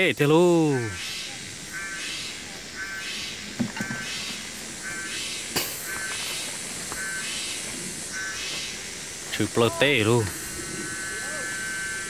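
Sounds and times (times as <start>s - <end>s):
short buzzy animal call: 10.6s - 12.0s.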